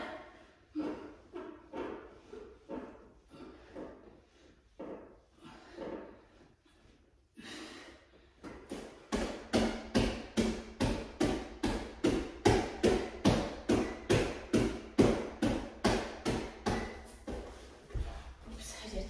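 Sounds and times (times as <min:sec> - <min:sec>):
quick rhythmic thuds: 0:08.4 - 0:18.2.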